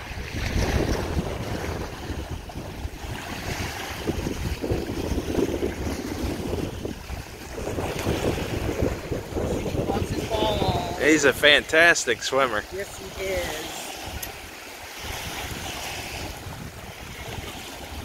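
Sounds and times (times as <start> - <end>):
splashing water: 0.0 - 18.0
wind buffeting microphone: 0.0 - 18.0.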